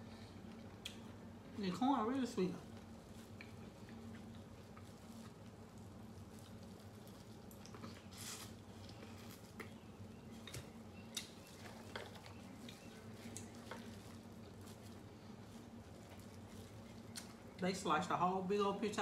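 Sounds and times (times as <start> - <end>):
faint low hum: 0.0 - 19.0
biting and chewing corn: 2.8 - 17.6.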